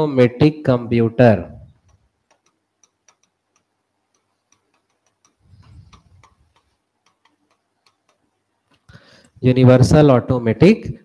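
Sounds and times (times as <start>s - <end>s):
pen tip tapping on whiteboard: 1.8s - 8.3s.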